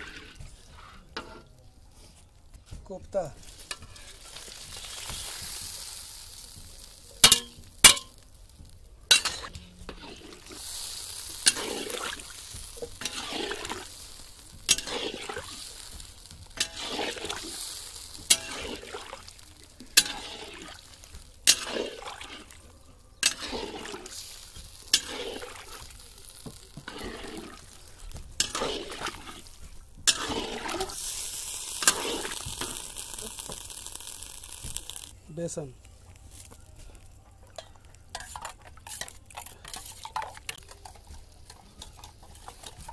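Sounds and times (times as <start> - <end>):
metal spatula clinking on pan: 7.2 - 8.2, 9.1 - 9.6, 37.6 - 42.8
liquid sloshing: 18.5 - 22.6, 23.2 - 26.0.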